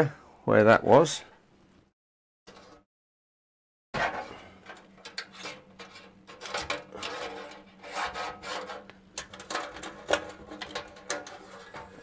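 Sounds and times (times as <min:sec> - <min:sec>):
plastic scraping on metal case: 0:04.0 - 0:12.0.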